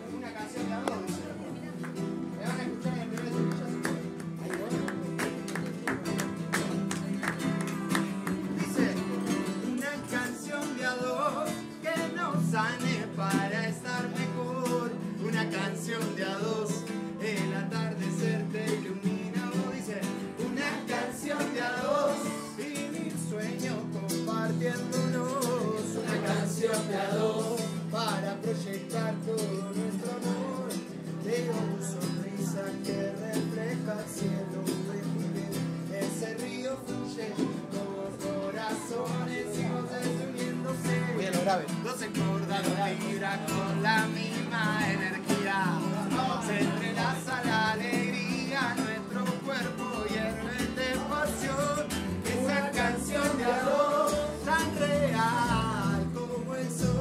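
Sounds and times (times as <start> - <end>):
acoustic guitar strumming: 0.0 - 57.0
hand claps: 0.8 - 10.3
person singing: 7.4 - 57.0.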